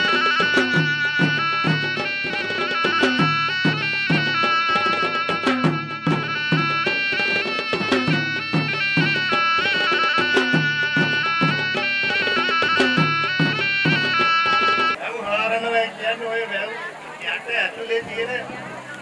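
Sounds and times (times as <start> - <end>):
shrill reed pipe melody: 0.0 - 15.0.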